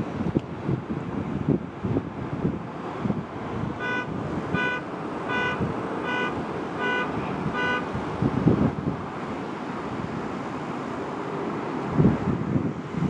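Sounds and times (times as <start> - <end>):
wind buffeting microphone: 0.0 - 13.0
electronic warning beeps: 3.8 - 7.8.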